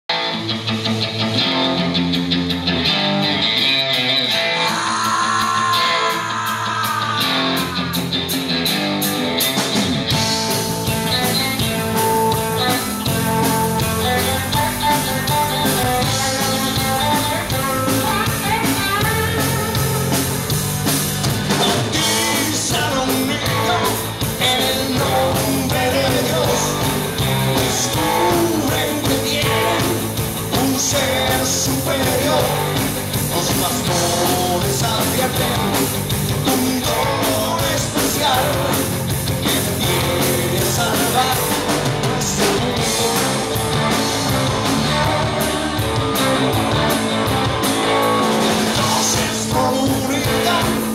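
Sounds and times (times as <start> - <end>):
bass guitar: 0.0 - 50.9
electric guitars: 0.0 - 50.9
drum kit: 0.1 - 50.9
man singing: 4.2 - 8.8, 10.2 - 20.2, 21.5 - 43.6, 48.4 - 50.9.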